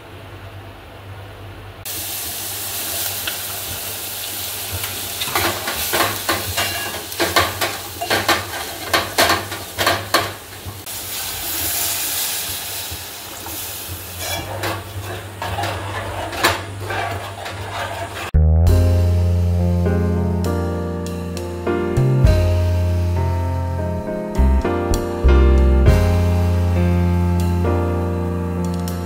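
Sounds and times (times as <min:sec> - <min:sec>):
vegetables sizzling in oil: 0:01.9 - 0:18.4
spoon scraping and clinking pot: 0:06.6 - 0:09.9, 0:14.2 - 0:18.4.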